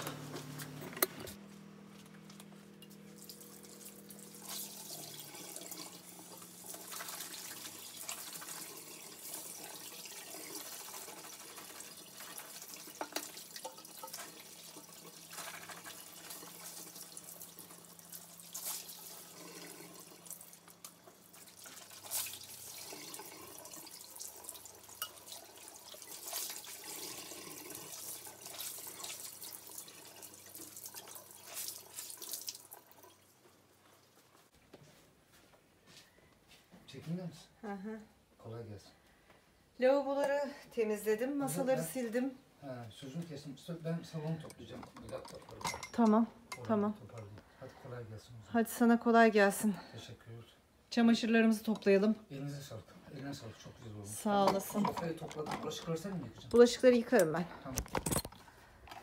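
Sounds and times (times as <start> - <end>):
tap water running and splashing: 2.8 - 34.3.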